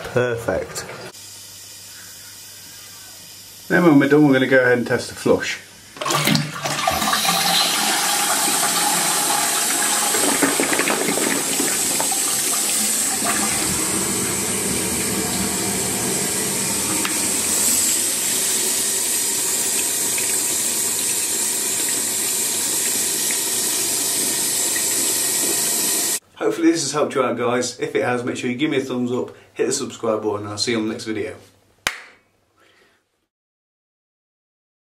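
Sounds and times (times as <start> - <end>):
cistern refilling: 6.0 - 26.2
toilet flushing: 6.0 - 26.2.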